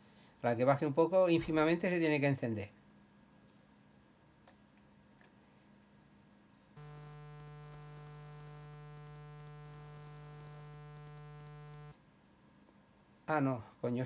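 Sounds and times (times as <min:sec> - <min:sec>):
electrical buzz: 0:06.8 - 0:12.0.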